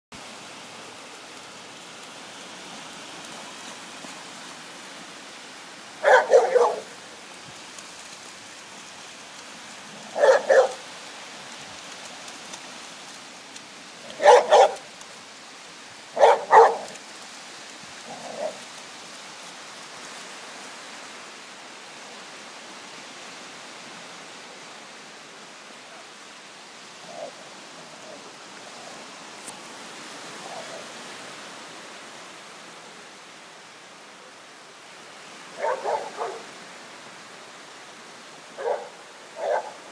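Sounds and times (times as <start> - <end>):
steady background hiss: 0.2 - 39.9
dog barking: 6.0 - 7.0, 10.2 - 10.8, 14.1 - 14.8, 16.2 - 17.0, 35.6 - 36.5, 38.6 - 39.8.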